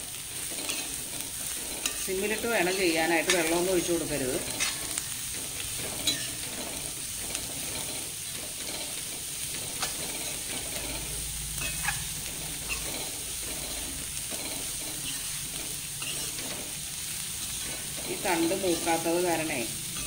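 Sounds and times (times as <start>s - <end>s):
stems sizzling in a pan: 0.0s - 20.0s
metal spoon scraping a pan: 0.1s - 20.0s
spoon clinking on metal: 6.0s - 6.4s, 11.6s - 12.1s, 16.0s - 16.4s.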